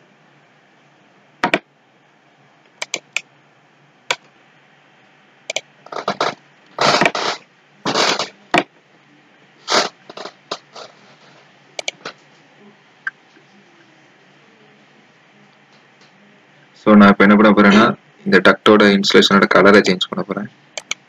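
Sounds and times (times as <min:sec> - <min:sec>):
faint room hum: 0:00.0 - 0:21.0
computer mouse clicks: 0:02.8 - 0:03.2, 0:11.8 - 0:12.1, 0:20.8 - 0:21.0
mouse scraping: 0:05.9 - 0:08.3.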